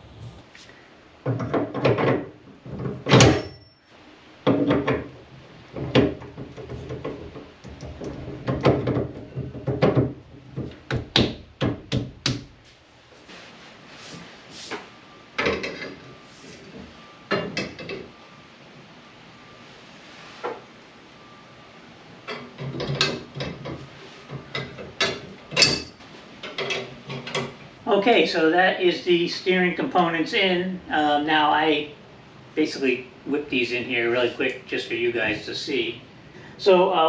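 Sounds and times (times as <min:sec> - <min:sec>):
metal parts knocking and clanking: 0:01.2 - 0:03.7, 0:04.4 - 0:11.8, 0:15.4 - 0:16.1, 0:16.7 - 0:18.1, 0:22.3 - 0:27.6.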